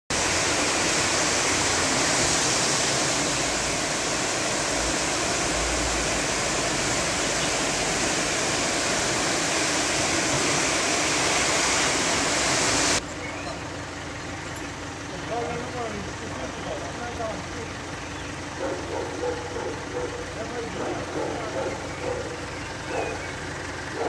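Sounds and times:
heavy rain downpour: 0:00.1 - 0:13.0
water rushing over street: 0:00.1 - 0:24.0.

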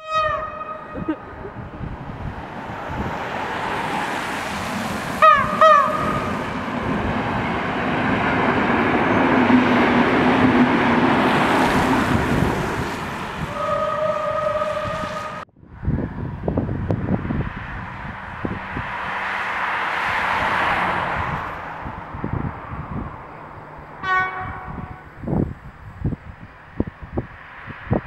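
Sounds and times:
train horn toots: 0:00.0 - 0:01.1, 0:05.2 - 0:06.4, 0:13.4 - 0:15.4, 0:24.0 - 0:25.1
train passing rumble: 0:00.0 - 0:28.0.

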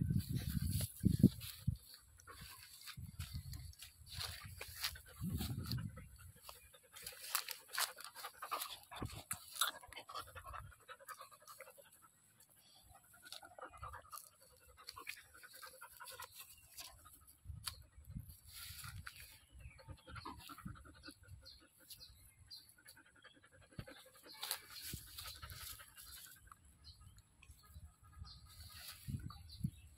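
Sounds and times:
dog panting: 0:04.5 - 0:17.2.

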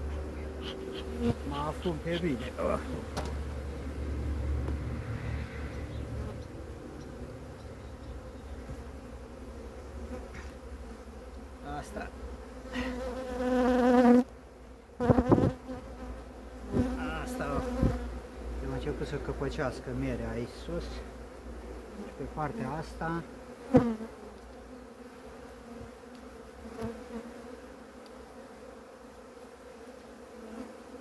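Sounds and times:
bee buzzing close: 0:00.0 - 0:31.0
honeybees buzzing: 0:00.0 - 0:31.0.

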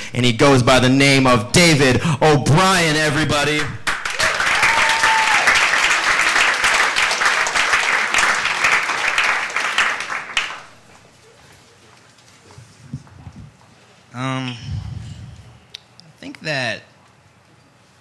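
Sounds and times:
audience applauding: 0:03.8 - 0:10.9.

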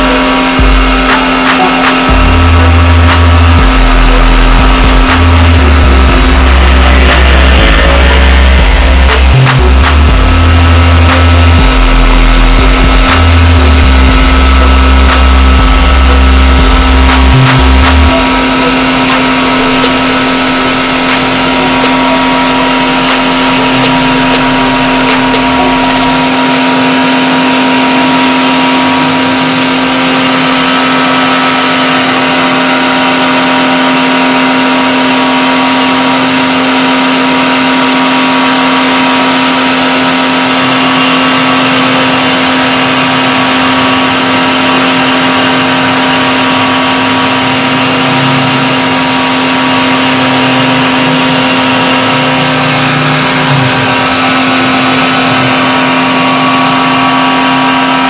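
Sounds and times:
pressure washer motor hum: 0:00.0 - 0:58.0.

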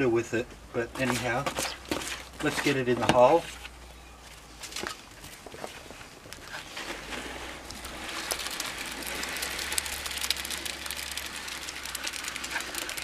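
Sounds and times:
wet concrete pouring from tub: 0:06.5 - 0:13.0.

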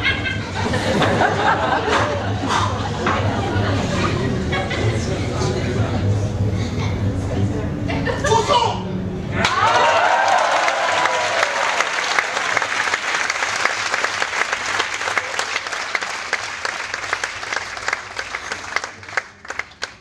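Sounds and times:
people cheering: 0:09.3 - 0:19.7
audience applauding: 0:09.4 - 0:20.0.

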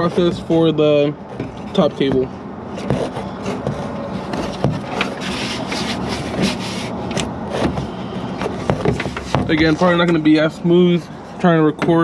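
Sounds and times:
hands rubbing and scraping: 0:01.6 - 0:10.2.

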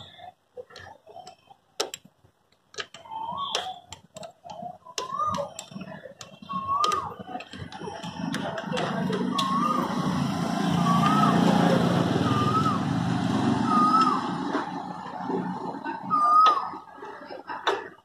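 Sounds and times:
rising-and-falling whistle: 0:09.2 - 0:15.1.

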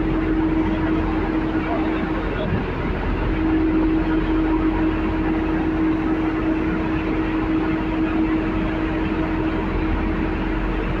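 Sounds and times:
boat engines rumbling: 0:00.0 - 0:11.0
wind and water rushing: 0:00.0 - 0:11.0.

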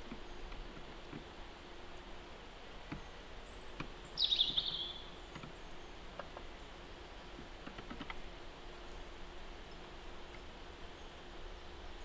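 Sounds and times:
songbird call with descending trill: 0:03.4 - 0:05.1.

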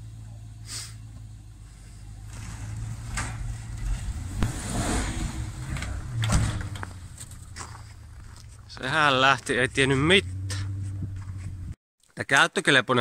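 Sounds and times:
car engine revving under load: 0:01.2 - 0:08.3, 0:09.5 - 0:11.8.

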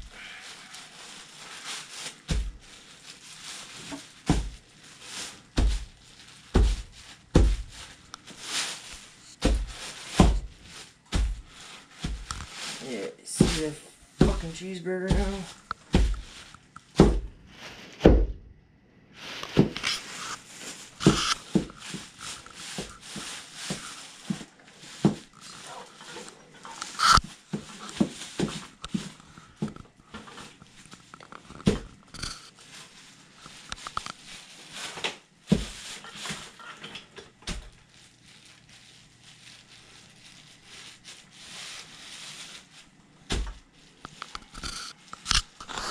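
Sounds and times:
plastic crinkling underfoot: 0:00.0 - 0:18.2, 0:19.1 - 0:45.9
boots stomping: 0:06.6 - 0:07.8, 0:09.4 - 0:12.3, 0:13.4 - 0:17.3.

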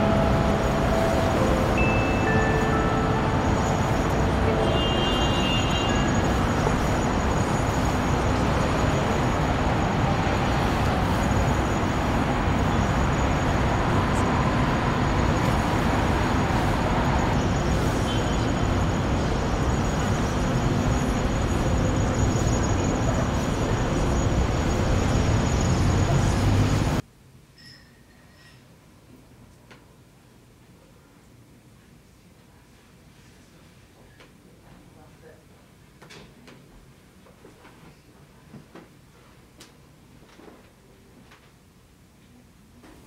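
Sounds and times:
city street traffic: 0:00.0 - 0:27.0.

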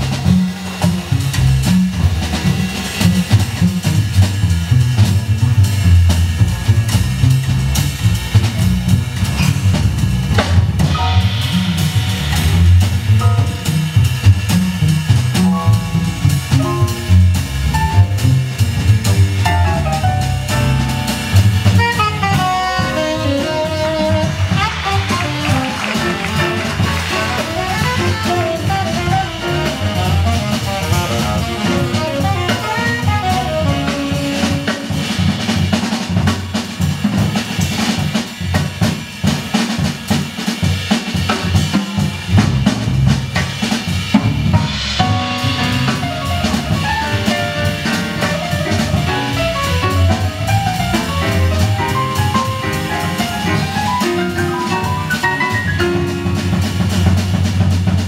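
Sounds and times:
upright bass: 0:00.0 - 0:37.8, 0:41.4 - 0:58.0
cymbals: 0:00.0 - 0:58.0
drum kit played busily: 0:00.0 - 0:58.0
piano chords: 0:10.8 - 0:34.6, 0:44.4 - 0:57.3.

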